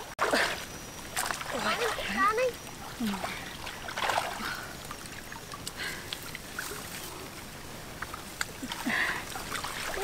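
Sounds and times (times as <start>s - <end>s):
small water splashes: 0.0s - 7.2s, 8.0s - 10.0s
water sloshing and dripping: 0.0s - 10.0s.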